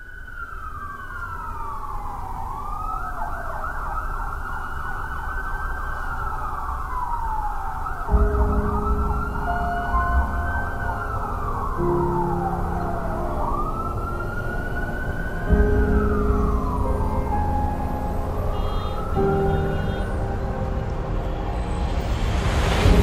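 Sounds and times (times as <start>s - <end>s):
emergency siren wailing: 0.0s - 22.2s
deep steady drone: 6.5s - 23.0s
low rumble: 8.1s - 23.0s.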